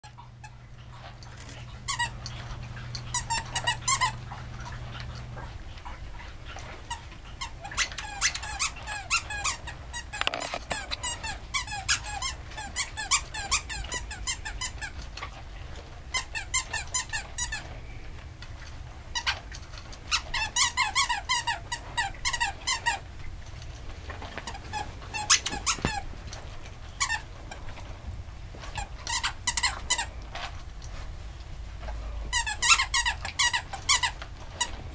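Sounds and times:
squeaky toy squeaking: 0:07.6 - 0:14.7, 0:24.7 - 0:26.0, 0:32.3 - 0:34.1.

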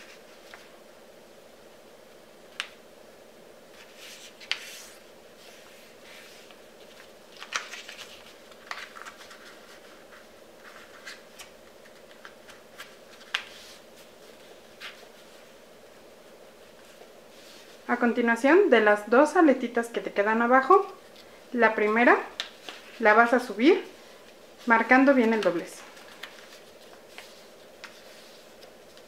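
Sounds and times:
paper folding and rustling: 0:00.0 - 0:00.8, 0:03.7 - 0:15.6, 0:22.4 - 0:23.2, 0:24.2 - 0:29.0
faint steady hum: 0:00.0 - 0:29.0.

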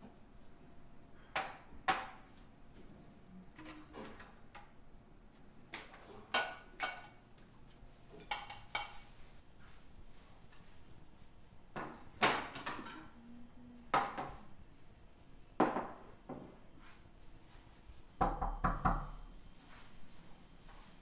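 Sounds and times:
plates clattering on wooden table: 0:08.1 - 0:09.1, 0:11.8 - 0:13.2, 0:13.9 - 0:14.4, 0:15.6 - 0:16.6
knocking on a door: 0:18.2 - 0:19.1.

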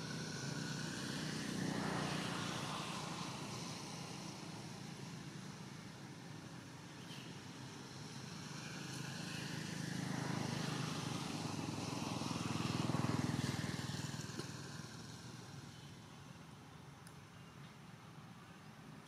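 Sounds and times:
vehicle engine passing by: 0:00.0 - 0:05.7, 0:07.2 - 0:16.1.

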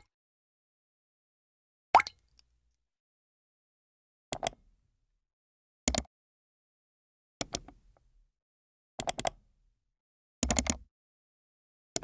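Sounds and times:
computer mouse clicks: 0:04.3 - 0:04.6, 0:05.9 - 0:06.1, 0:07.4 - 0:07.8, 0:09.0 - 0:09.4, 0:10.4 - 0:10.9.

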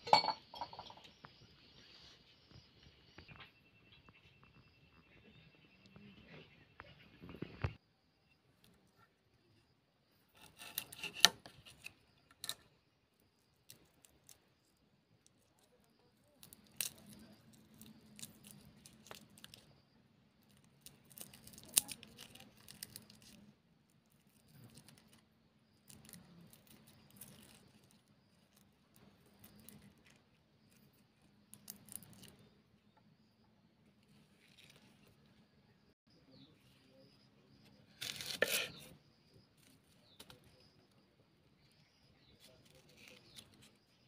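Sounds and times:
garlic skins crackling and tearing: 0:13.3 - 0:32.5, 0:37.9 - 0:38.9.

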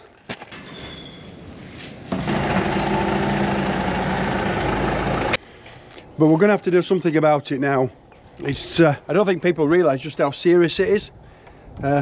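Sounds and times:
birds chirping: 0:00.5 - 0:05.3
grass harvester machine humming: 0:02.1 - 0:05.4.

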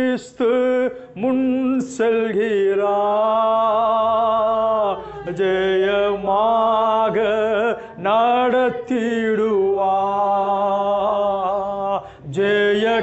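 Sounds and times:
man singing a hymn: 0:00.0 - 0:13.0
man breathing between phrases: 0:12.0 - 0:12.3.

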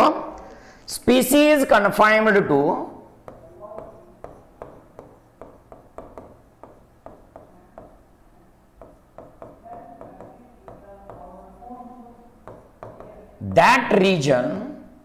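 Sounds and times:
pen tapping on screen: 0:03.2 - 0:08.1, 0:08.8 - 0:11.4, 0:12.4 - 0:13.2.

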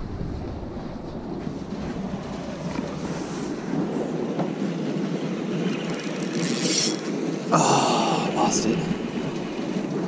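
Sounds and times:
footsteps on boat deck: 0:00.2 - 0:03.2
fishing reel cranking clatter: 0:05.8 - 0:07.0.

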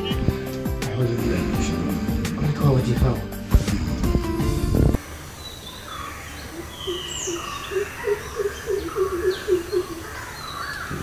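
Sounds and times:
birds chirping and whistling: 0:05.4 - 0:11.0.

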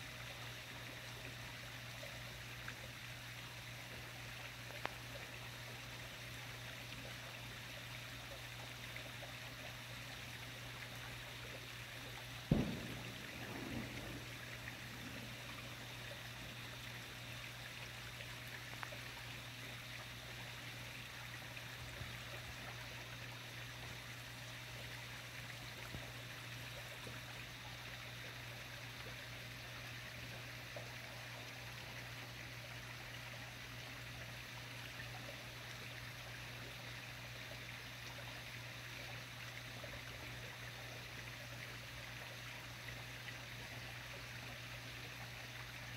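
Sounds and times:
constant low hum: 0:00.0 - 0:45.9
even hiss: 0:09.2 - 0:21.3
soft ticks: 0:12.5 - 0:14.4.

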